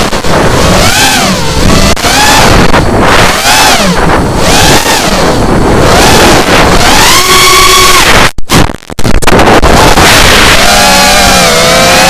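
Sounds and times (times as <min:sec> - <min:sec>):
quadcopter motors whining: 0:00.0 - 0:08.4, 0:09.6 - 0:12.0
wind rushing over microphone: 0:00.0 - 0:12.0.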